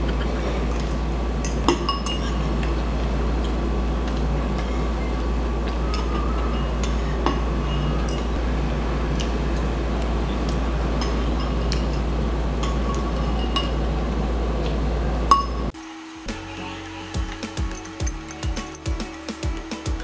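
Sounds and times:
low room hum: 0.0s - 20.0s
spoon and fork clinking on bowl: 1.4s - 2.5s, 17.2s - 19.1s.

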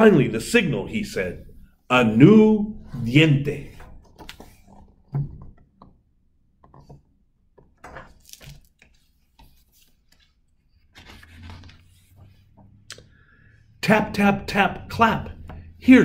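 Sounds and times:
book pages turning: 2.9s - 5.1s, 7.8s - 12.7s.

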